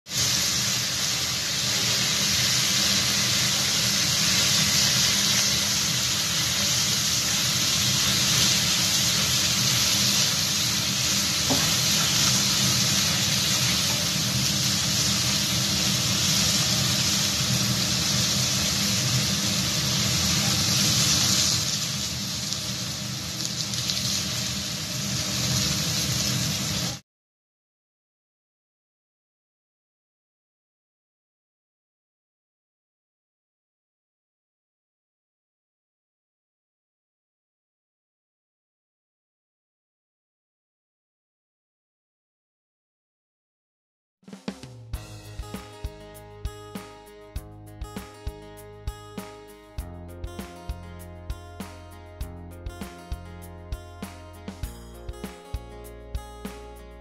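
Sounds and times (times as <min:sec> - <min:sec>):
meat sizzling in hot pan: 0:00.1 - 0:27.0.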